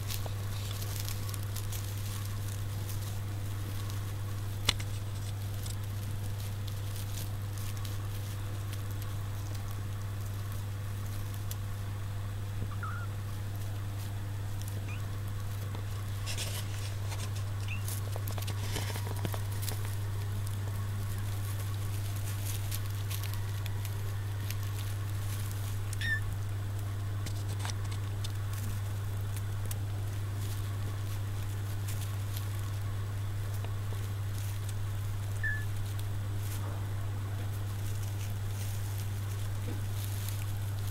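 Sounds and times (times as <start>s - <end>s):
kittens rustling and scratching: 0.0s - 40.9s
steady low hum: 0.0s - 40.9s
kittens squeaking faintly: 12.6s - 13.4s, 14.7s - 15.3s, 17.6s - 18.0s, 25.9s - 26.3s, 35.4s - 35.7s.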